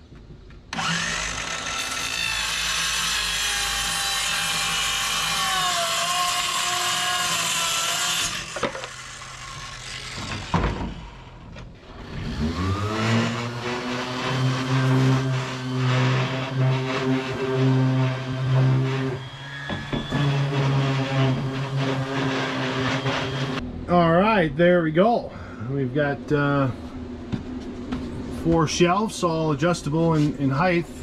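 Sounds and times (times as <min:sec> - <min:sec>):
circular saw cutting plywood: 0:00.7 - 0:23.6
palm sander spinning up: 0:00.7 - 0:23.6.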